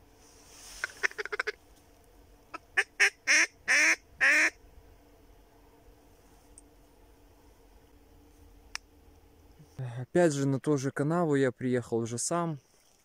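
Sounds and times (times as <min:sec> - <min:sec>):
duck call quacking: 0:00.8 - 0:01.6, 0:02.5 - 0:04.6.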